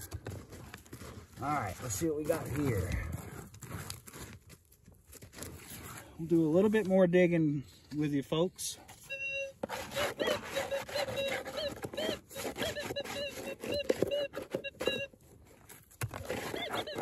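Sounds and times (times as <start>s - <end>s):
coil scraping on gravel: 0.4s - 4.5s, 9.5s - 17.0s
metal detector chirps: 9.0s - 15.2s, 16.5s - 17.0s.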